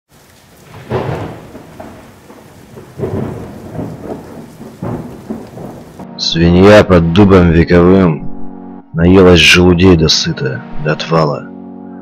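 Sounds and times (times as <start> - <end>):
steady rain: 0.1 - 6.4
rolling thunder: 0.2 - 6.9.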